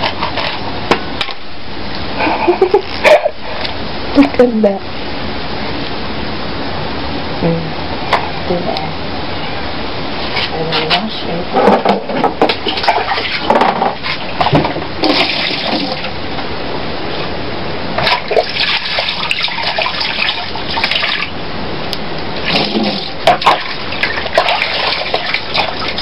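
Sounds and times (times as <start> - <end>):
water splashing into plastic basin: 11.7 - 16.1, 18.0 - 21.3, 22.4 - 26.0.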